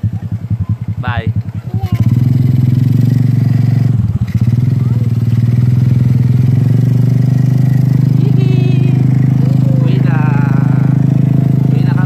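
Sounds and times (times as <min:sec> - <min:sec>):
small motorcycle engine running: 0:00.0 - 0:12.0.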